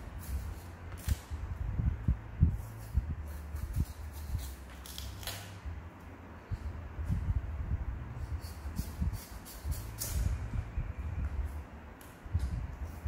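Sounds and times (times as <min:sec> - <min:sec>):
low handling rumble: 0:00.8 - 0:03.6, 0:09.9 - 0:13.0
knife slicing melon rind: 0:02.6 - 0:05.6.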